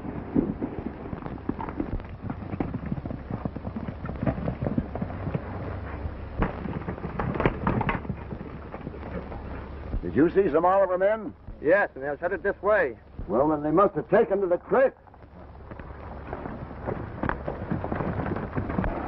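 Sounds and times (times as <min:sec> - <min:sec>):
horses galloping: 0:00.0 - 0:19.0
steady low hum: 0:00.0 - 0:19.0
sharp cracks: 0:06.4 - 0:10.3.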